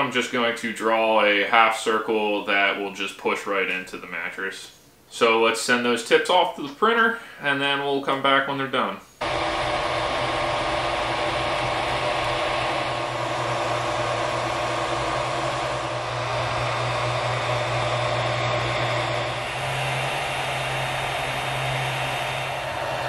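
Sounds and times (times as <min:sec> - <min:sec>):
low even hum: 0:09.2 - 0:23.0
printer fans whirring: 0:09.2 - 0:23.0.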